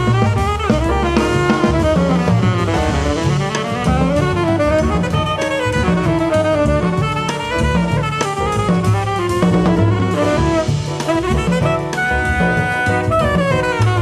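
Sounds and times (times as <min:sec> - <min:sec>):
drum kit: 0:00.0 - 0:14.0
tenor saxophone melody: 0:00.0 - 0:14.0
upright bass: 0:00.0 - 0:14.0.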